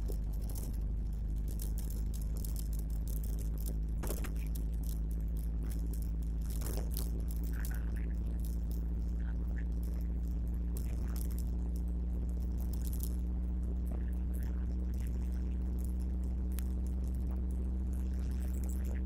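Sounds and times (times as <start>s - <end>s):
rattling clicks: 0.0s - 8.9s
engine and road drone: 0.0s - 19.0s.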